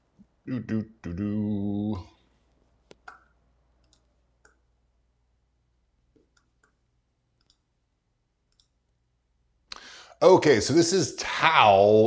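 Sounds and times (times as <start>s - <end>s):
computer mouse clicks: 2.9s - 4.6s, 6.1s - 6.8s, 7.4s - 7.7s, 8.5s - 8.8s.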